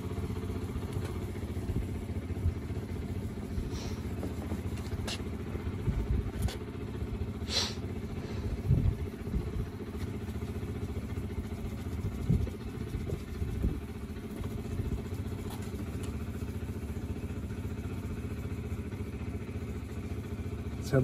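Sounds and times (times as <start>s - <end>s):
low rumble: 8.2s - 9.7s.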